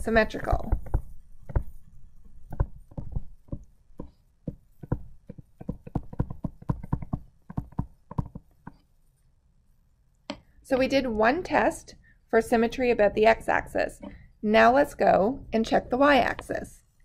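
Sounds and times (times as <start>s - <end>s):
stylus tapping on tablet screen: 0.1s - 8.9s.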